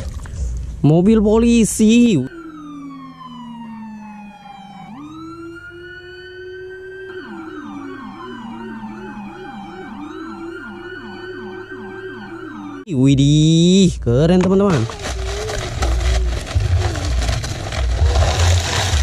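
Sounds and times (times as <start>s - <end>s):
siren wailing: 1.2s - 13.1s, 14.7s - 19.0s
siren fast yelp: 1.4s - 12.9s.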